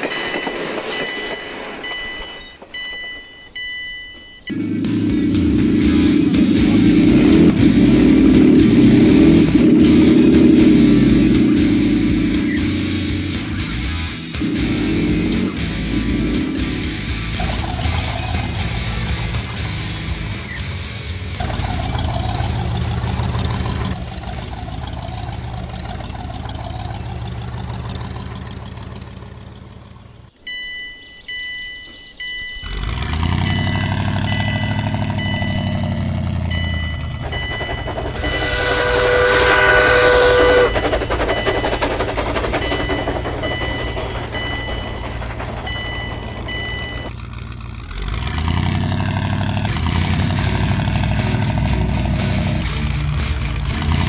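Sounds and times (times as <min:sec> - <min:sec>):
railway crossing warning beeps: 0:00.0 - 0:20.8, 0:21.4 - 0:47.9
vehicle engine running: 0:04.4 - 0:30.4, 0:32.6 - 0:54.0
loud horn blast: 0:38.0 - 0:41.4.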